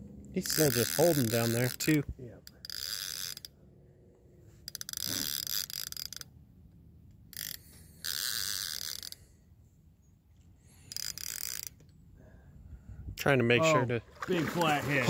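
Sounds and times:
fishing reel clicking and ratcheting: 0:00.4 - 0:03.6, 0:04.6 - 0:09.4, 0:10.8 - 0:12.0.

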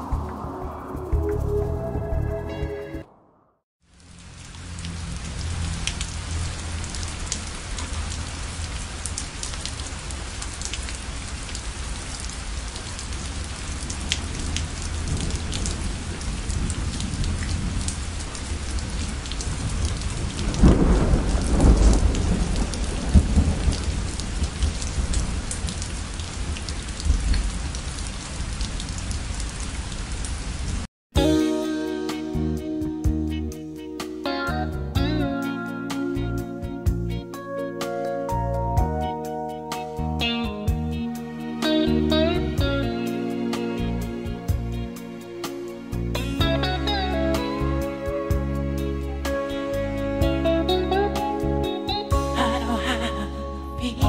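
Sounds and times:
thunder rumbling: 0:00.0 - 0:03.6, 0:13.2 - 0:28.9
heavy rain pouring: 0:03.9 - 0:30.9, 0:41.3 - 0:54.0.

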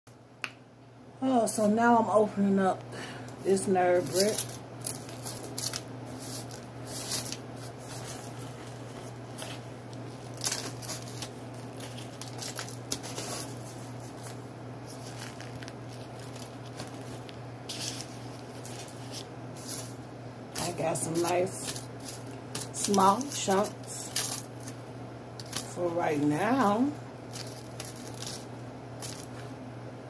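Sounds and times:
paper bag crinkling and tearing: 0:03.8 - 0:20.0, 0:20.6 - 0:24.8, 0:25.4 - 0:25.9, 0:27.2 - 0:29.5
crumbly chunks dropping onto foil: 0:04.0 - 0:07.4, 0:10.2 - 0:13.6, 0:20.6 - 0:24.8, 0:25.4 - 0:25.8, 0:27.3 - 0:29.5.

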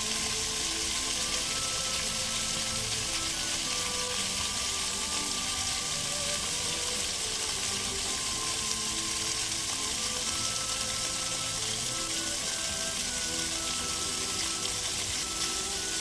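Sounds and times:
faint music: 0:00.0 - 0:16.0
fountain water splashing: 0:00.0 - 0:16.0.

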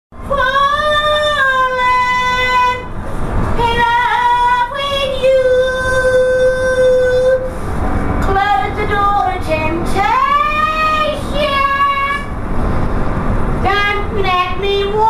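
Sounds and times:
woman singing unaccompanied: 0:00.3 - 0:02.9, 0:03.6 - 0:07.5, 0:08.2 - 0:12.3, 0:13.6 - 0:15.0.

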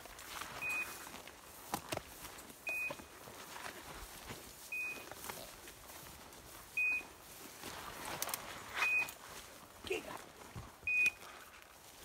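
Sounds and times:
footsteps through brush and grass: 0:00.0 - 0:12.0
collar beeping: 0:02.6 - 0:03.0, 0:04.7 - 0:05.1, 0:06.8 - 0:07.1, 0:10.8 - 0:11.2.

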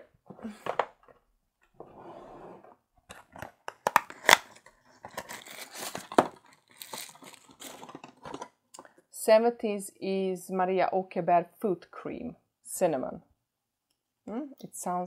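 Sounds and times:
paper tearing and crumpling: 0:04.1 - 0:08.0.

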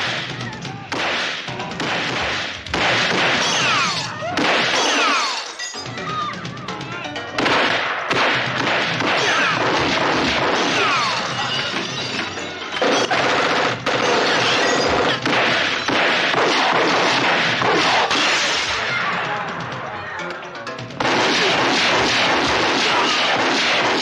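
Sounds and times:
loud action music score: 0:00.0 - 0:24.0
rapid pistol fire: 0:00.9 - 0:05.1, 0:07.4 - 0:11.1, 0:12.8 - 0:18.8, 0:21.0 - 0:24.0
things smashing and breaking: 0:09.1 - 0:16.2.

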